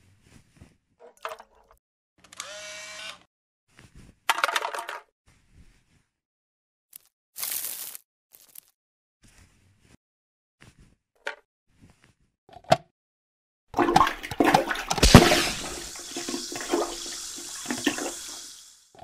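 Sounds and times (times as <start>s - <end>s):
toilet flushing: 13.8s - 18.8s.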